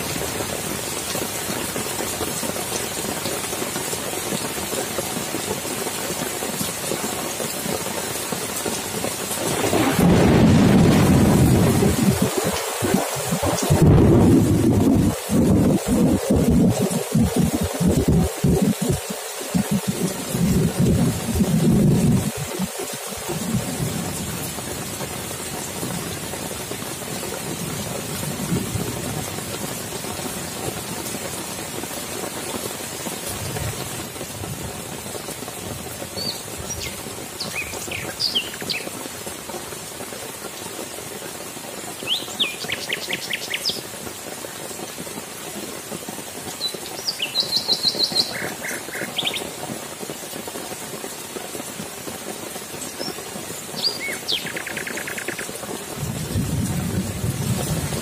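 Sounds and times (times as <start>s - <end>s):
rain pouring on grass and puddles: 0.0s - 58.0s
distant thunder rumbles: 9.4s - 24.7s, 56.0s - 58.0s
birds chirping: 36.2s - 38.9s, 46.6s - 49.5s, 53.8s - 55.5s.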